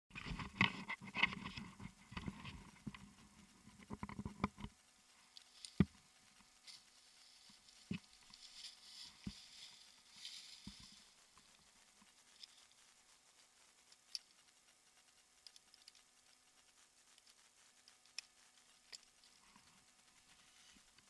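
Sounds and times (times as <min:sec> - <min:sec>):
clothing and rope rustling: 0:05.2 - 0:12.9.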